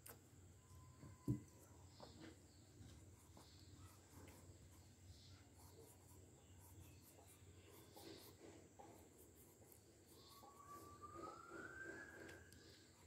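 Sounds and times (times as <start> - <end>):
pencil scratching on paper: 2.9 - 11.8.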